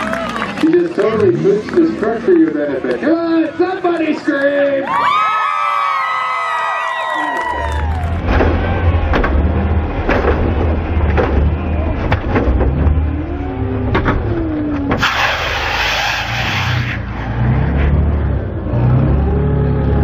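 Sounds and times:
tires spinning in dirt: 5.8 - 20.0
truck engine revving: 7.5 - 20.0
truck banging over obstacles: 7.8 - 15.8.

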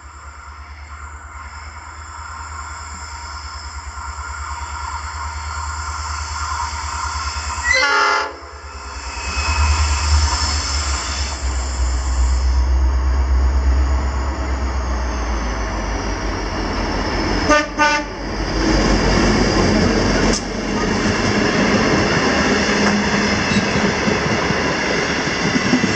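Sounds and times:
diesel locomotive engine throbbing: 0.0 - 25.9
train horn blasts: 7.6 - 8.7, 17.5 - 18.2.

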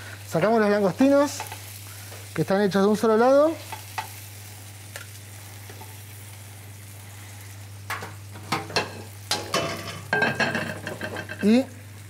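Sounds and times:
prawns sizzling in frying pan: 0.0 - 12.0
utensil clinking against pan: 8.5 - 11.5.

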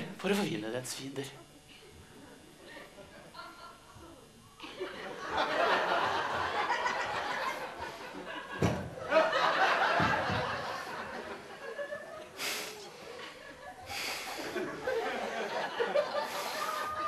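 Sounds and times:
audience laughing: 2.6 - 17.0
thump: 8.5 - 9.0, 10.0 - 10.6.

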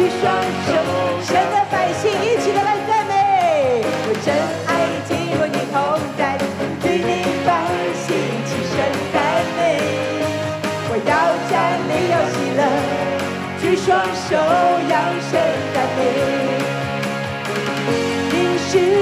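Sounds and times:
woman singing: 0.0 - 16.8, 18.2 - 19.0
electronic keyboard chords and melody: 0.0 - 19.0.

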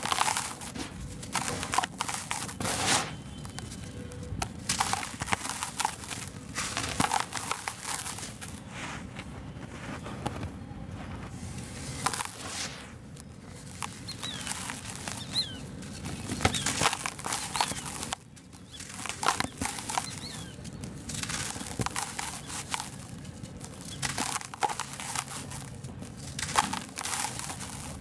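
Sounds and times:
gritty mix crumbling by hand: 0.0 - 28.0
small clicks of falling bits: 13.1 - 28.0.

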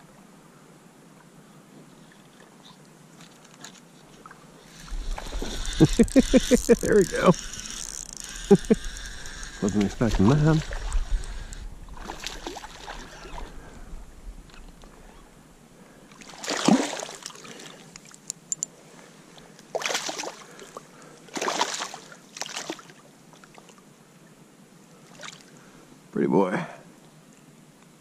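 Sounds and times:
fish splashing in water: 12.0 - 13.5, 16.2 - 17.8, 19.7 - 20.6, 21.3 - 22.9.

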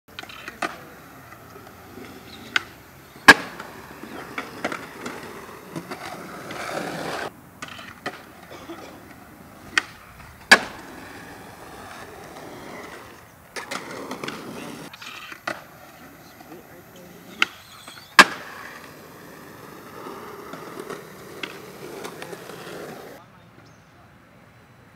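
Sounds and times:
skateboard clacks: 0.1 - 23.2
skateboard landing: 0.1 - 23.2
skateboard wheels rolling on concrete: 0.1 - 23.7
skateboard tail pop: 2.5 - 8.3, 9.7 - 10.9, 17.4 - 19.0, 20.5 - 22.2.

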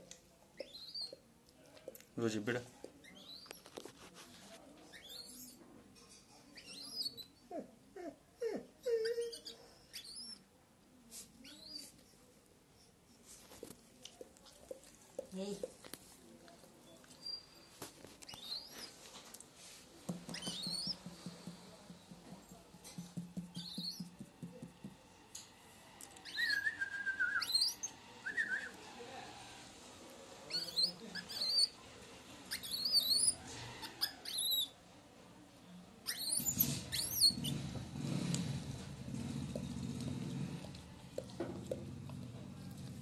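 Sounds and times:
infant monkey squeaking: 8.9 - 10.4, 20.3 - 21.0, 23.6 - 24.0, 30.5 - 31.8, 32.5 - 34.7, 36.0 - 37.6.

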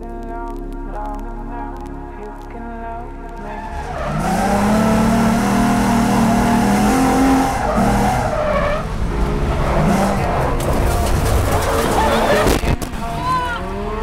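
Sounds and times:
car engine running: 3.4 - 14.0
car tires squealing: 3.5 - 9.0, 9.7 - 14.0.

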